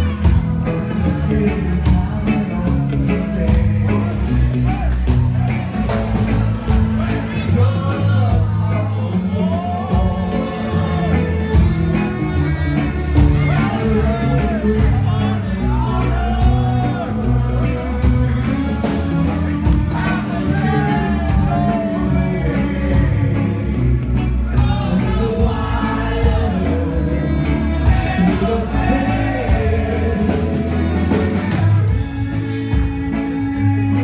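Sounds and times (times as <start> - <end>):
live rock band playing: 0.0 - 34.0
person singing lead vocals: 0.0 - 34.0.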